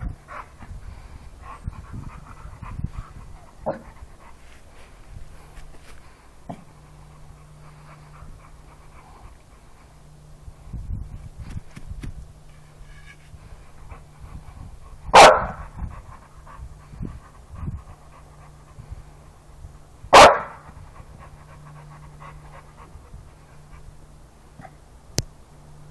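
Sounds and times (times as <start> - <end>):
dog panting: 0.0 - 10.1, 13.4 - 19.6, 20.6 - 24.1
dog barking: 15.1 - 15.6, 20.2 - 20.6.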